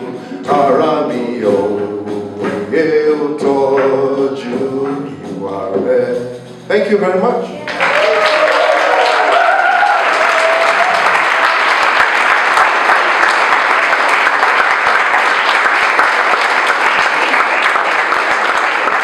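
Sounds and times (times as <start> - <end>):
audience applauding: 7.6 - 19.0.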